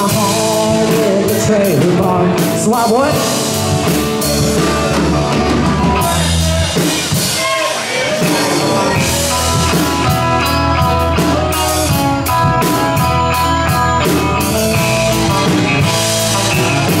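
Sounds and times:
electric guitars sustained notes: 0.0 - 7.4, 8.1 - 17.0
drum kit: 0.0 - 17.0
steady low bass: 8.5 - 17.0.

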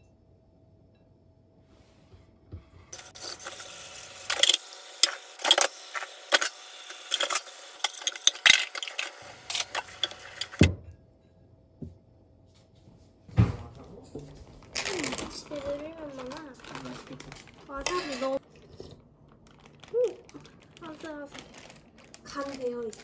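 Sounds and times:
running tap water: 2.9 - 10.7.

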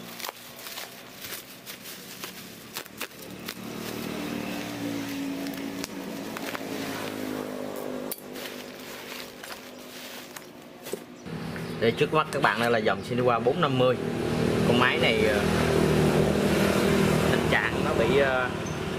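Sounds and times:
bubble wrap crinkling: 0.0 - 11.2
sharp plastic crackles: 0.0 - 11.2.

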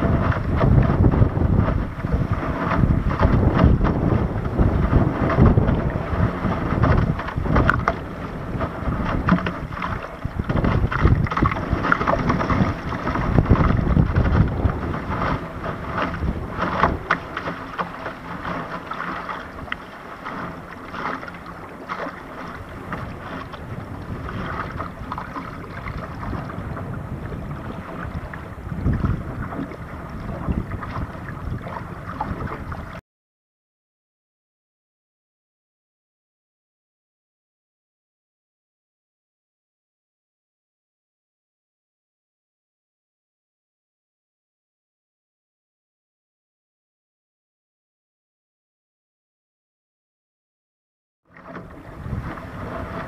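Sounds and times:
water slapping against boat hull: 0.0 - 33.0, 51.3 - 53.0
wind buffeting microphone: 0.0 - 33.0, 51.4 - 53.0.

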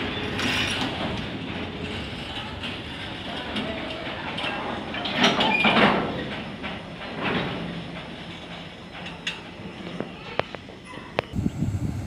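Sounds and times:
train wheels clanking and rattling: 0.0 - 11.4.

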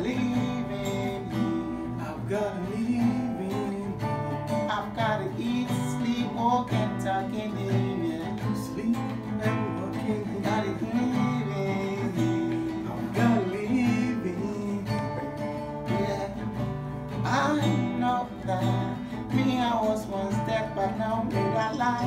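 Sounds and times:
acoustic guitar strumming: 0.0 - 22.0
man singing: 0.0 - 22.0.

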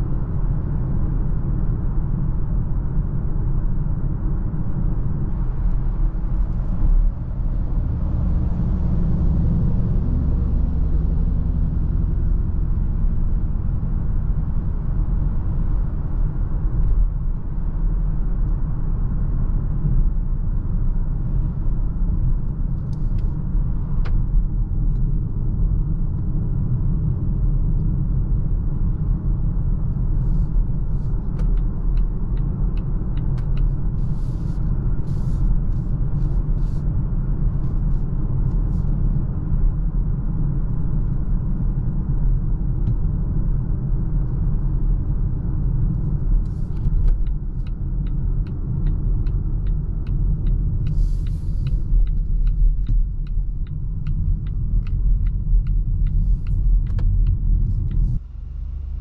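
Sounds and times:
road and tyre rumble: 0.0 - 59.0
light ticks: 45.9 - 58.2.

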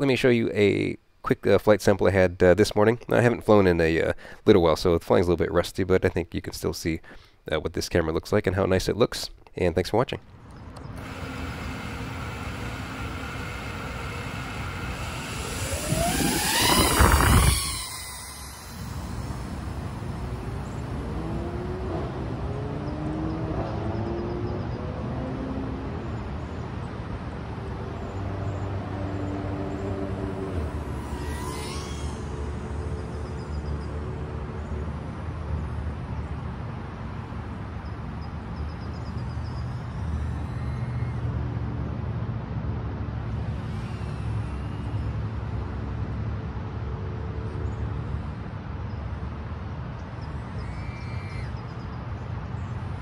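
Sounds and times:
drone motors buzzing: 10.4 - 24.0, 27.5 - 36.4, 38.3 - 41.4, 43.3 - 46.2
high whistle sliding down: 11.0 - 21.2, 29.4 - 34.0
wind over microphone: 12.2 - 21.1.

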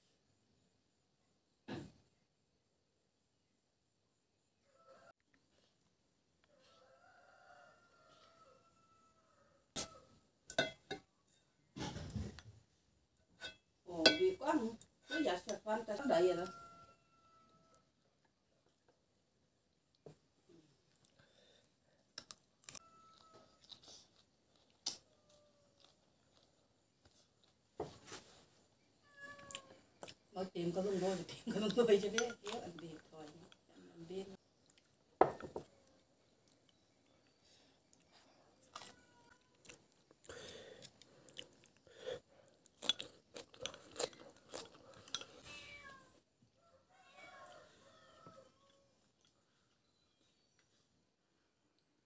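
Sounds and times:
soft chewing: 4.9 - 12.4, 19.8 - 28.5, 29.3 - 30.3, 31.0 - 45.9, 46.5 - 51.0
chewing: 22.1 - 27.6, 34.6 - 35.1, 35.7 - 45.5, 48.7 - 50.0.

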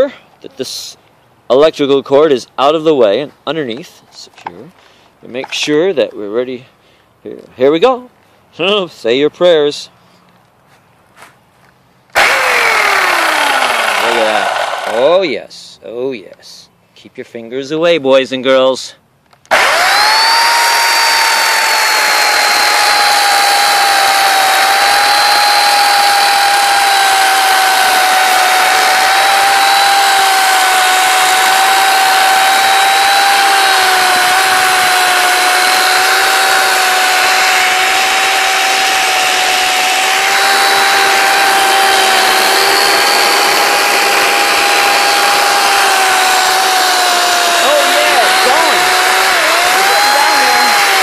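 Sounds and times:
electric chainsaw whining: 12.1 - 15.2, 19.5 - 51.0.

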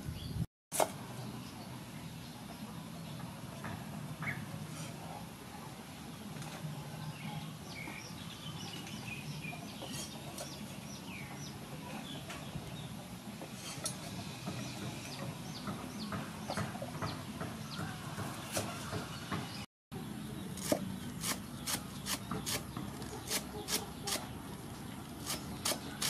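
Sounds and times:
birds chirping: 1.0 - 26.0.

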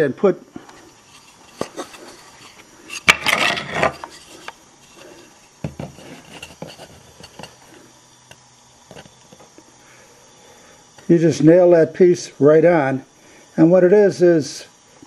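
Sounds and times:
wood scraping on wood: 0.8 - 7.9
light knocks on wood: 5.6 - 6.0.

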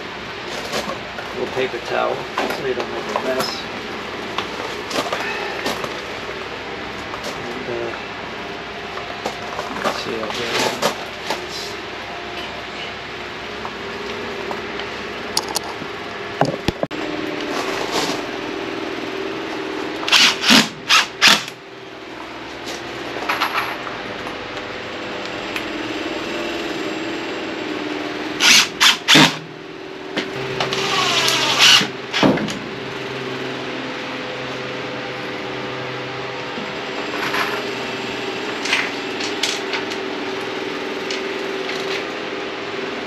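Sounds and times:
steady low hum: 0.0 - 43.0
drill driving screws into wood: 20.1 - 21.5, 28.4 - 29.4, 30.7 - 32.4.

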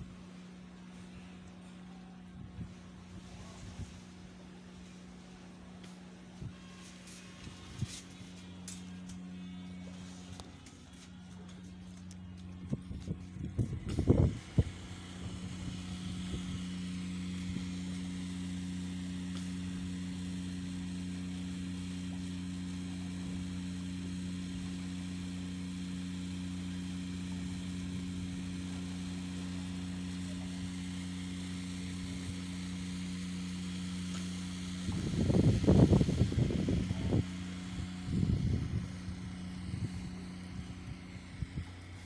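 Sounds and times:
ship machinery humming: 0.0 - 22.3, 34.1 - 42.0.

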